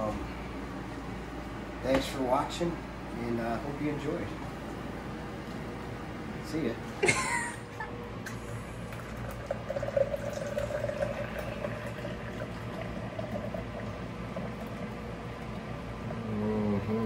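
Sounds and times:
beer pouring hiss: 0:08.3 - 0:15.7.

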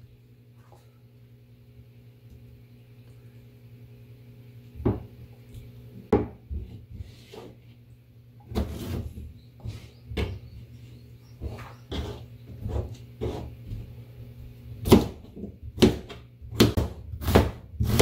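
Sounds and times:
steady low hum: 0:00.0 - 0:18.0
knife chopping on plastic board: 0:14.8 - 0:18.0.

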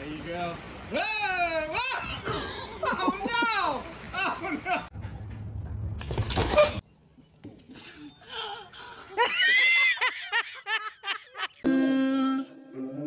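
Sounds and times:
woman laughing hard: 0:08.3 - 0:11.6.

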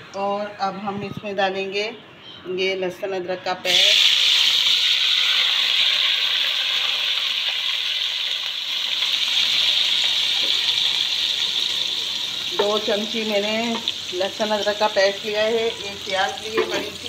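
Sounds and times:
onion frying in hot oil: 0:03.7 - 0:17.0.

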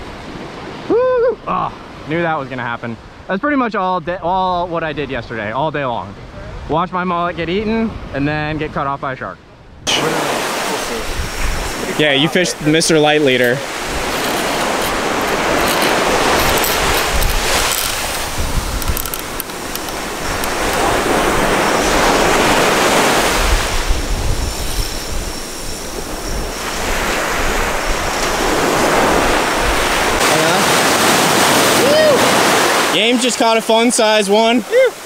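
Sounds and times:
wind buffeting microphone: 0:09.6 - 0:32.9
ocean surf breaking: 0:09.8 - 0:35.0.

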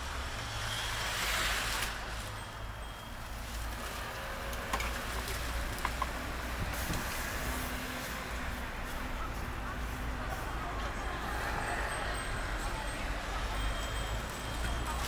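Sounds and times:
low rumble of street traffic: 0:00.0 - 0:15.0.

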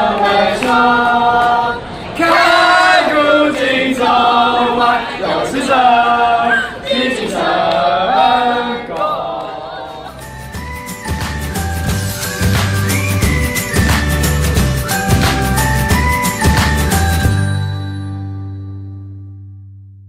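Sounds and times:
group singing in unison: 0:00.0 - 0:10.3.

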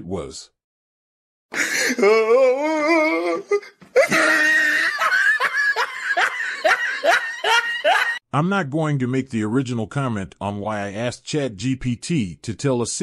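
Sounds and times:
hearty belly laughter: 0:04.0 - 0:08.2.

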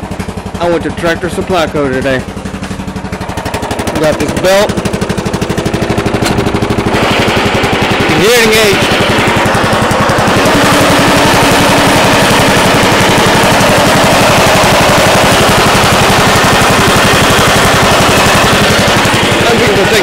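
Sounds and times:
lawn tractor engine running: 0:00.0 - 0:20.0.

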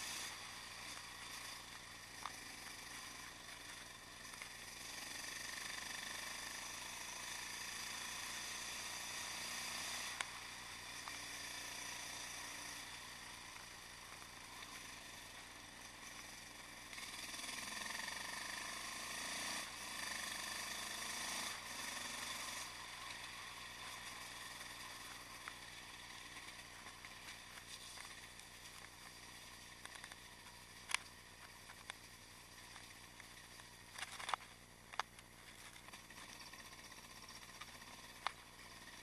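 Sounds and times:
muffled motorcycle engine running: 0:00.0 - 0:39.0.

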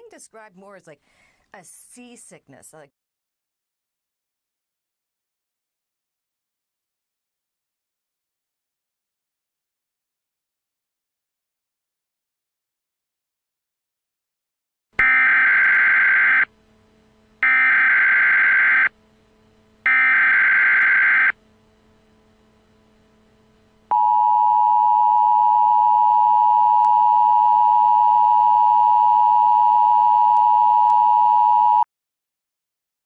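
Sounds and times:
warbling data tone bursts: 0:17.4 - 0:18.9, 0:19.9 - 0:21.4
dual-tone attention signal: 0:23.9 - 0:31.8.

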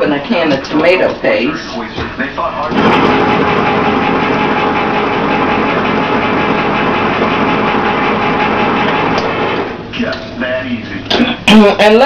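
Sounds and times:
electric can opener motor: 0:02.7 - 0:09.8.

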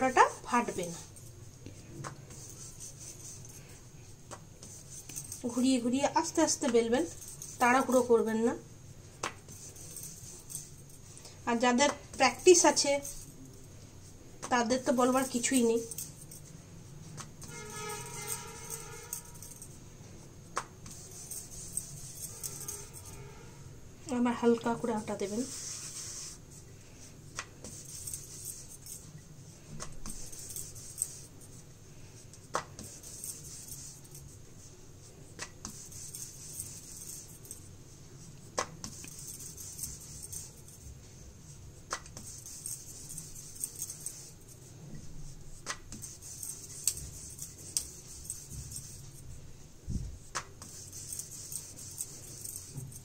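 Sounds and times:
rolling pin rolling dough: 0:20.5 - 0:23.0, 0:24.5 - 0:53.0.

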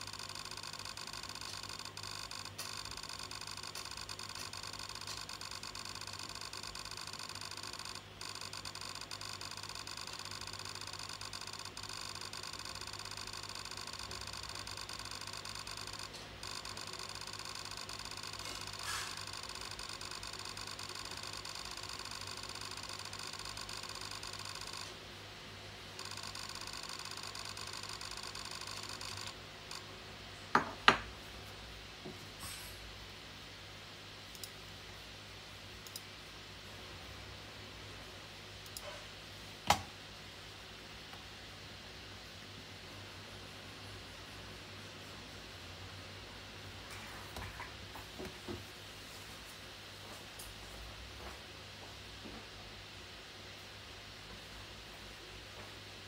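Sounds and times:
high-pitched electronic whine: 0:00.0 - 0:24.9, 0:26.0 - 0:29.8.

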